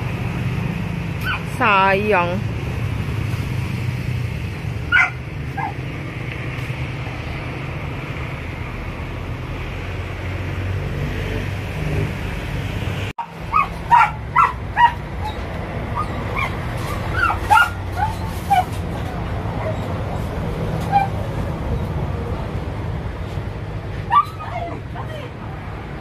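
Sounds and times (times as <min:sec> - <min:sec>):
dog yipping and barking: 0:01.2 - 0:01.5, 0:04.9 - 0:05.8, 0:13.2 - 0:18.8, 0:19.6 - 0:21.3, 0:24.0 - 0:25.3.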